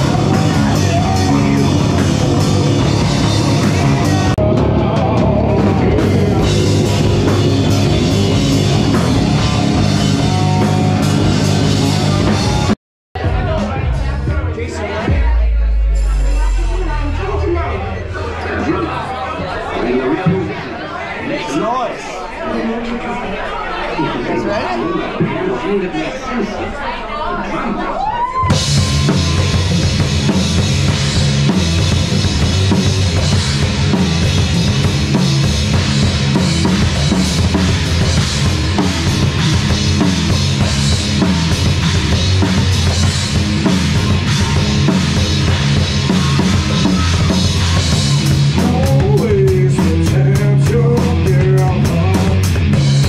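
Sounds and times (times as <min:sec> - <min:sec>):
heavy rock band playing: 0:00.0 - 0:20.6, 0:28.3 - 0:53.0
pounding drum kit: 0:00.0 - 0:20.6, 0:28.4 - 0:53.0.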